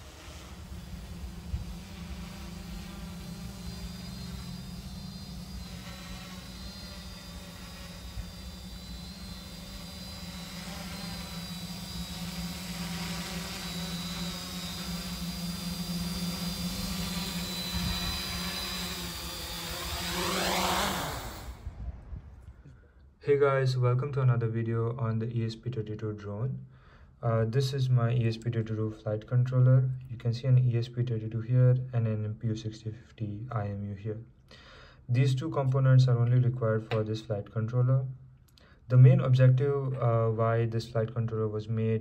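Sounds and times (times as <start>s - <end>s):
quadcopter propellers buzzing: 0.0s - 22.4s.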